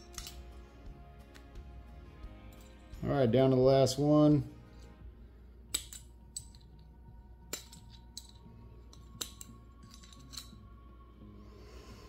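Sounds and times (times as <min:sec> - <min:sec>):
metal pick clicking on metal: 0:07.5 - 0:10.6.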